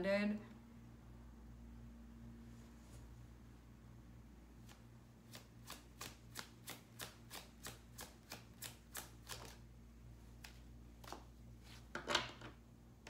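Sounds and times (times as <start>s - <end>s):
cards being shuffled: 4.6s - 9.6s, 10.3s - 12.6s.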